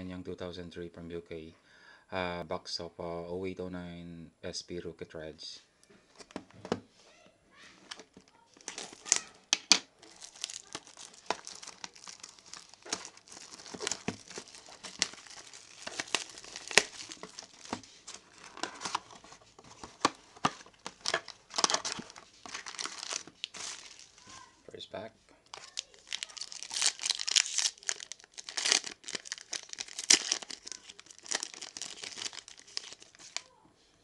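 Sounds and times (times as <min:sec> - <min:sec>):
shrink-wrap crinkling and tearing: 0:07.8 - 0:24.6, 0:25.4 - 0:33.5.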